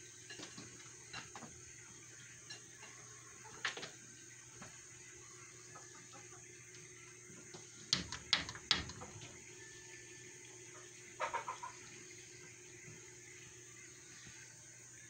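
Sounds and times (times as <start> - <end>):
beak tapping on glass door: 7.9 - 9.4.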